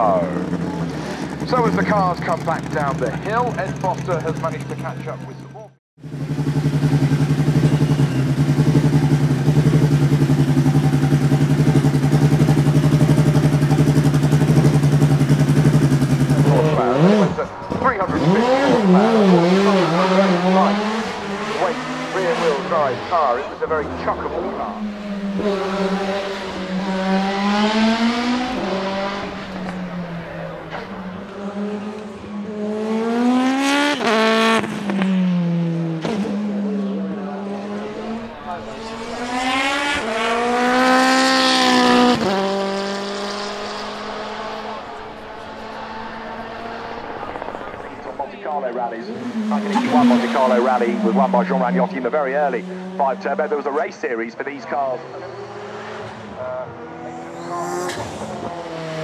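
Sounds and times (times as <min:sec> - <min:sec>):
race car engine idling: 0:00.0 - 0:18.4, 0:36.7 - 0:54.9
exhaust cracks: 0:00.2 - 0:05.6, 0:06.2 - 0:32.1, 0:37.8 - 0:54.9.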